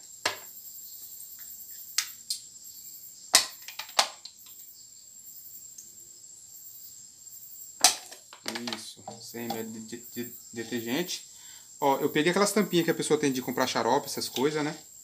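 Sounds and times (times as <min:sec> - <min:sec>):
faint high hiss and whine: 0:00.0 - 0:15.0.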